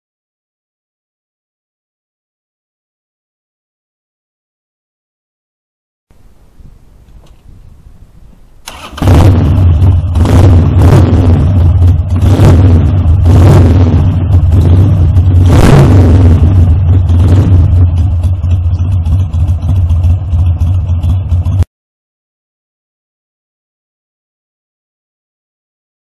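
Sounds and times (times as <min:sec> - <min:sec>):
motorcycle throttle blips: 0:06.2 - 0:21.6
motorcycle engine idling: 0:07.0 - 0:13.3, 0:13.9 - 0:15.4, 0:16.2 - 0:21.7
motorcycle engine starting: 0:07.0 - 0:21.7.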